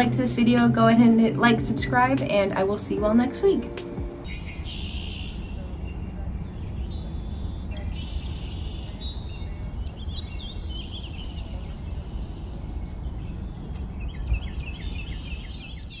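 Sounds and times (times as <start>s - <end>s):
low outdoor rumble: 0.0s - 4.3s
small birds chirping: 4.2s - 16.0s.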